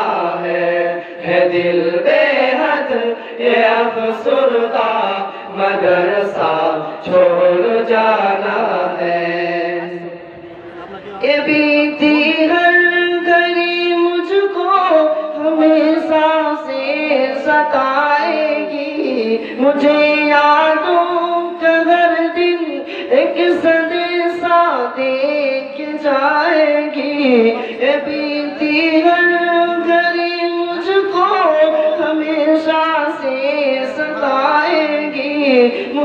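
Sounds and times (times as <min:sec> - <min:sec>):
men singing unaccompanied: 0:00.0 - 0:10.1, 0:11.2 - 0:36.0.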